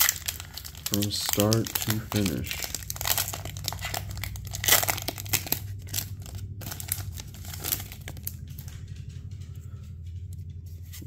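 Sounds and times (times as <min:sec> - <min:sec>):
foil wrapper tearing and crinkling: 0:00.0 - 0:08.7.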